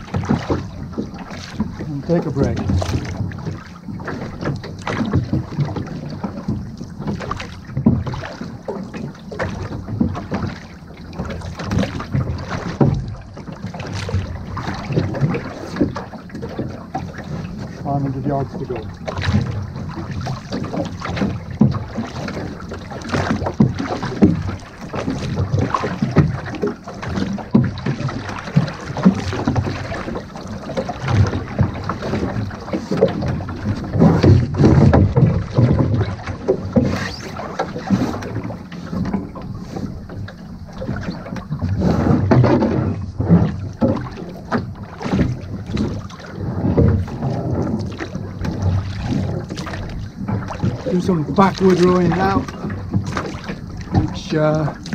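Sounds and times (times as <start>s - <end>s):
oars splashing and knocking: 0.0s - 54.9s
sea washing past hull: 0.0s - 54.9s
wind rumbling on microphone: 0.0s - 54.9s.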